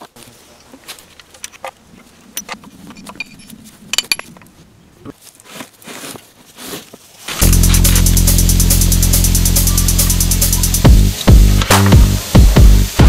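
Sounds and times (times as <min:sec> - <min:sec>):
metal clinks and knocks: 0:02.4 - 0:04.5.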